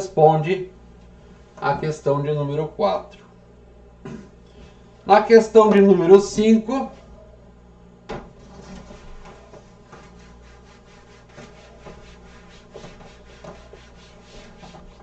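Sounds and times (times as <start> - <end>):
eraser wiping whiteboard: 8.4 - 15.0.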